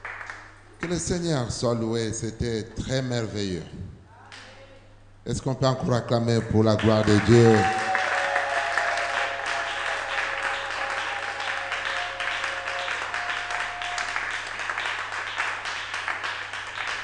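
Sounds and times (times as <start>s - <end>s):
crowd applauding: 0.0s - 0.5s, 6.4s - 17.0s.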